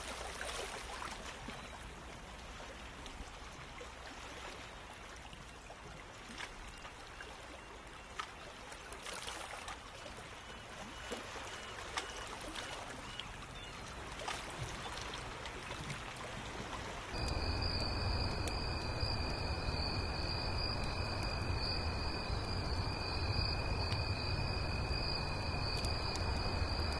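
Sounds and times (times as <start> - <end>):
water trickling and splashing: 0.0 - 26.9
crickets chirping: 17.2 - 26.9
low rumble: 17.2 - 26.9.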